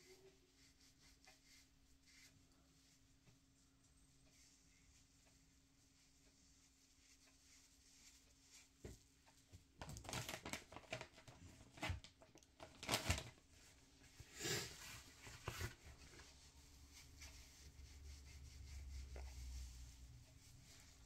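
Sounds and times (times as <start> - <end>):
tissue rustling and crinkling: 9.8 - 21.0.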